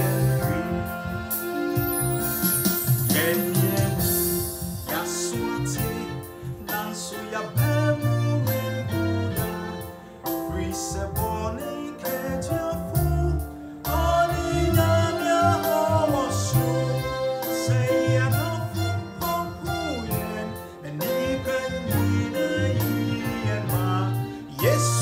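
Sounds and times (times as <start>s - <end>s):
man singing gospel song: 0.0s - 1.5s, 2.9s - 25.0s
keyboard accompaniment with beat: 0.0s - 25.0s.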